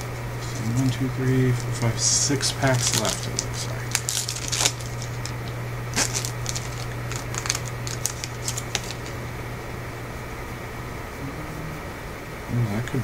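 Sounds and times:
foil wrapper crinkling: 0.4 - 9.2.

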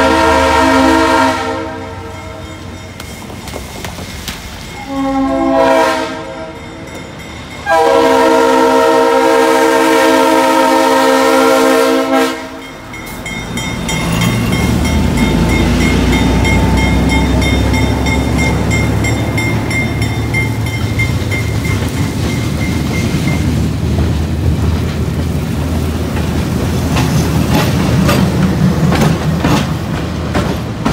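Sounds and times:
crossing bell ringing: 0.0 - 3.7, 4.5 - 9.0, 11.8 - 24.1
diesel locomotive rumble: 0.0 - 30.9
train wheels clacking on rails: 2.2 - 5.2, 12.3 - 30.9.

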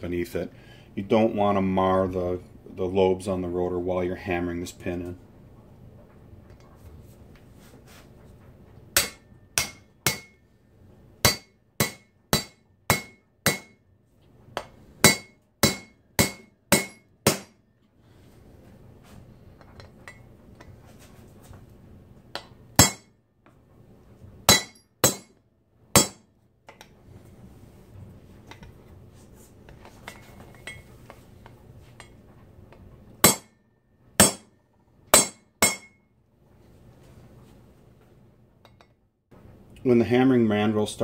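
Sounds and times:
hammer striking metal: 9.0 - 10.4, 11.2 - 13.8, 14.6 - 17.6, 22.4 - 23.1, 24.5 - 26.2, 33.2 - 33.6, 34.2 - 34.5, 35.1 - 36.0.

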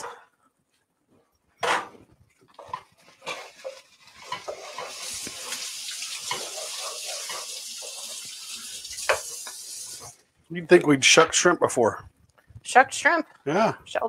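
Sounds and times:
steady hiss: 4.0 - 10.2.

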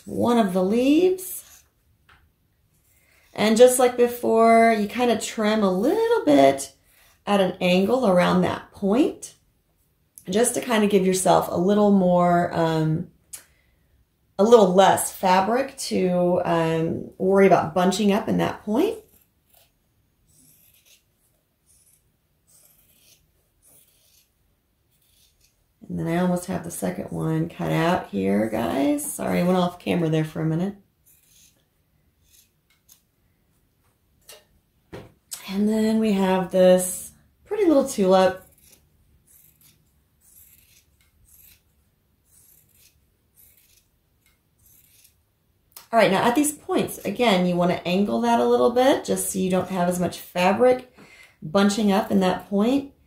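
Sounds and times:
scissors snipping fabric: 18.7 - 25.6, 31.0 - 33.1, 37.7 - 45.2.

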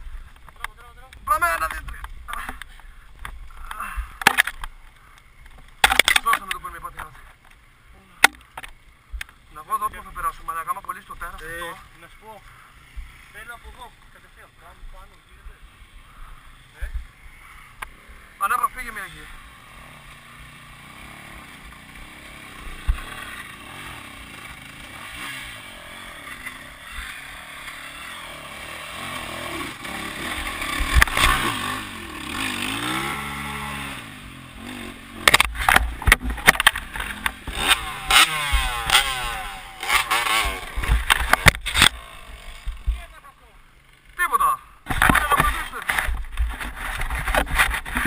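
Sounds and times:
dirt bike engines revving: 0.0 - 48.0
dirt bike passing close: 9.8 - 48.0.

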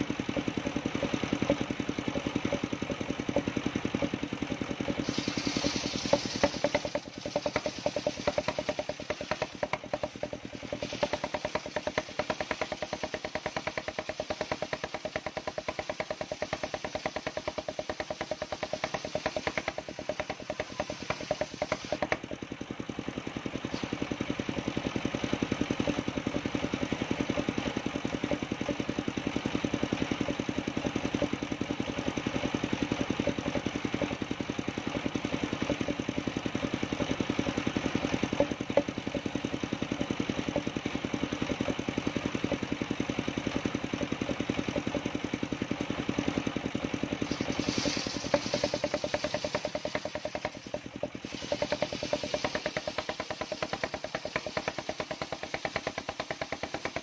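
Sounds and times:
saw blade cutting log: 0.0 - 22.3, 32.3 - 42.7, 47.1 - 57.0
engine running steadily: 0.0 - 57.0.

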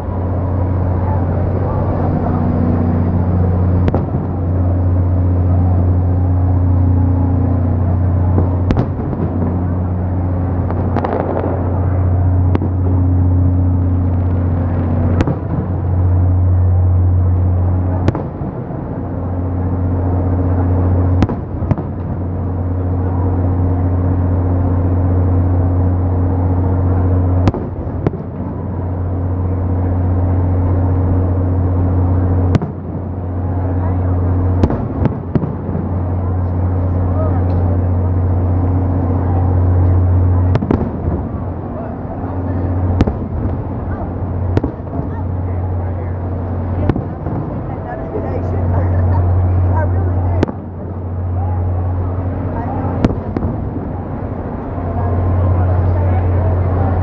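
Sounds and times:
loud steady low hum: 0.0 - 57.0
fireworks bangs: 0.2 - 16.4, 17.4 - 19.0, 20.4 - 22.5, 27.4 - 28.9, 32.4 - 33.1, 34.6 - 36.8, 38.4 - 48.2, 52.8 - 54.3.

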